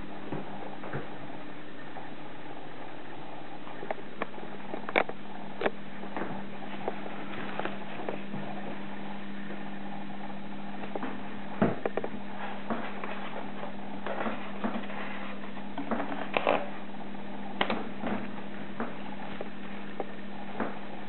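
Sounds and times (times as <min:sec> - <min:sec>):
low hum and hiss: 0:00.0 - 0:21.0.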